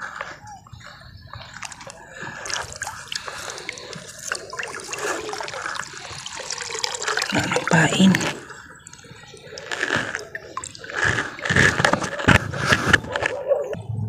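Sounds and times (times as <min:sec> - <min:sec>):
water splashing and trickling: 0:01.4 - 0:12.6.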